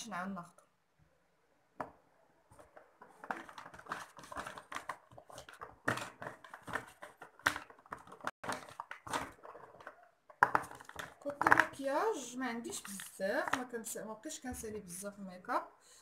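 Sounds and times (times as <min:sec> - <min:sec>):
plastic bottles clicking together: 0:02.6 - 0:11.9.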